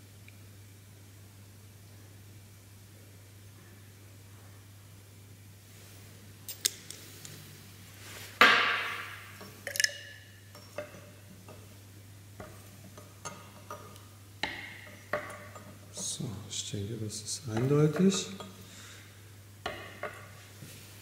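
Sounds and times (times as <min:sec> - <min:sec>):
glass test tubes clinking: 0:09.3 - 0:11.7, 0:17.5 - 0:18.6.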